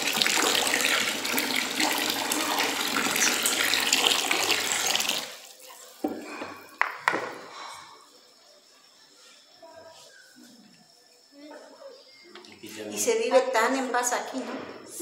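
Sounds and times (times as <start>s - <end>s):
water pouring and splashing into bowl: 0.0s - 6.2s.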